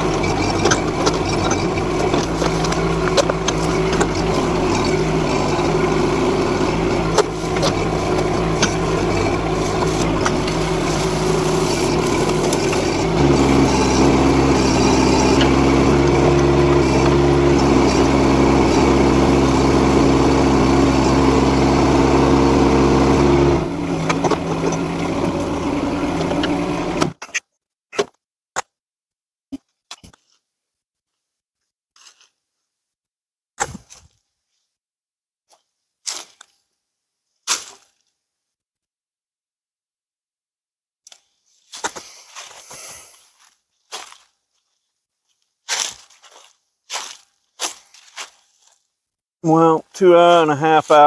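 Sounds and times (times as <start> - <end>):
excavator diesel engine running: 0.0 - 27.2.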